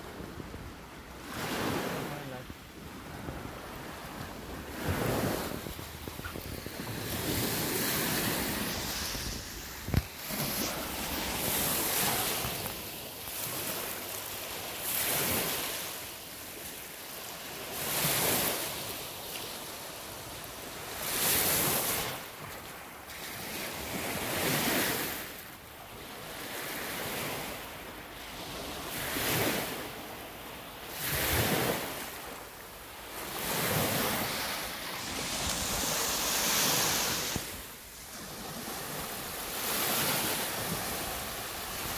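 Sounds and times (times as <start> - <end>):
small waves washing on shore: 0.0 - 41.9
wind buffeting microphone: 2.8 - 12.9.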